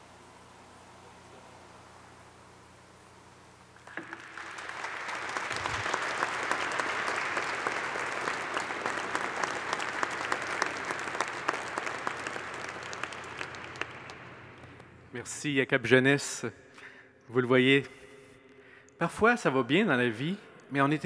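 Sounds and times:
congregation applauding: 3.8 - 15.0.

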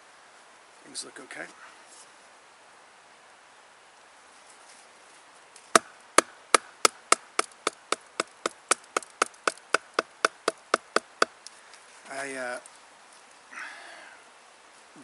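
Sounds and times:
wooden baton knocking knife spine: 6.6 - 11.3.

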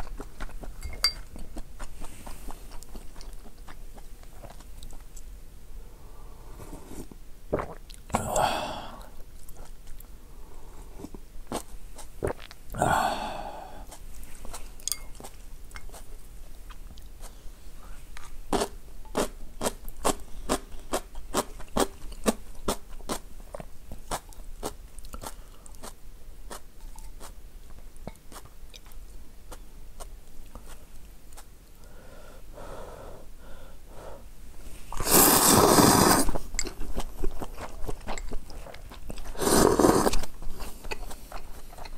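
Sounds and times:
wet chewing with mouth clicks: 0.0 - 5.3, 9.0 - 10.1, 11.0 - 12.8, 13.8 - 17.4, 18.1 - 31.8, 35.0 - 41.9
loud slurp of noodles: 34.9 - 36.4, 39.3 - 40.3
broth sipping: 34.9 - 41.9.

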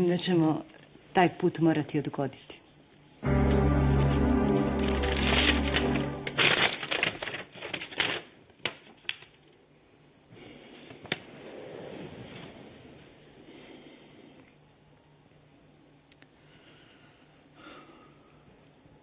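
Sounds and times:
paper rustling: 3.3 - 9.6
sharp paper snaps: 5.0 - 9.6.

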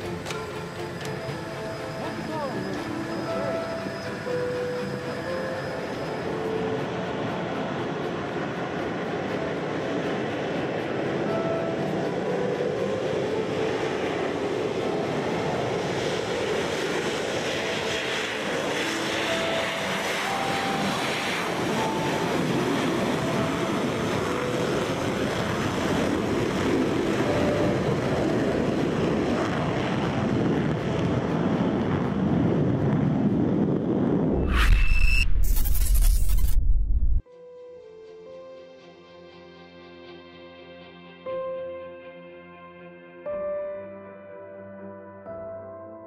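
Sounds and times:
music: 0.0 - 32.9, 37.2 - 46.0
jet engines roaring: 0.0 - 37.2.

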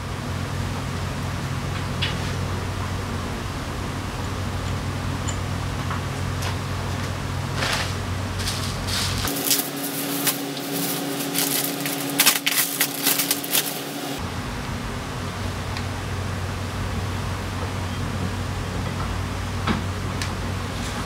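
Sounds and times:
low workshop hum: 0.0 - 21.0
plastic bag crinkling: 7.5 - 14.2.

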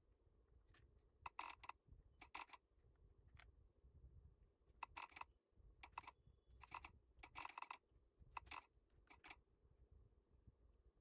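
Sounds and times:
mechanical keyboard typing: 1.3 - 2.6, 4.8 - 5.2, 5.8 - 7.8, 8.4 - 9.4.

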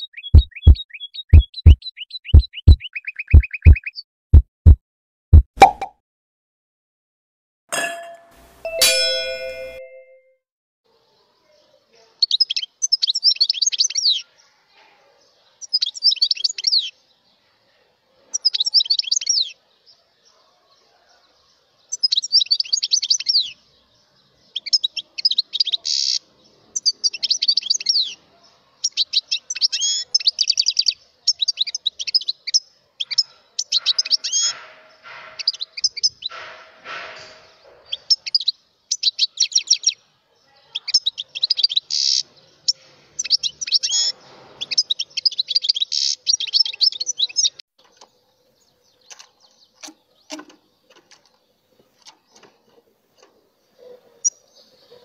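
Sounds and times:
finch twittering song: 0.0 - 4.0, 40.7 - 55.0.

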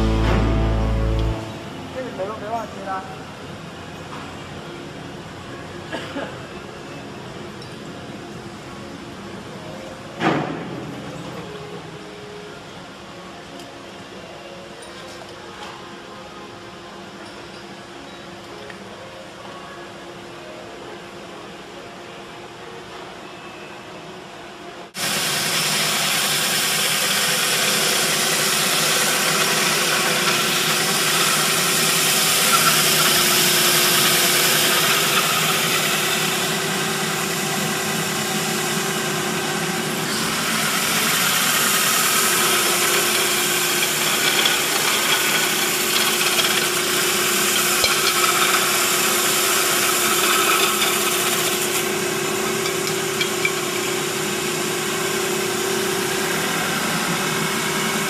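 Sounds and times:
sanding machine whirring: 25.0 - 58.0.

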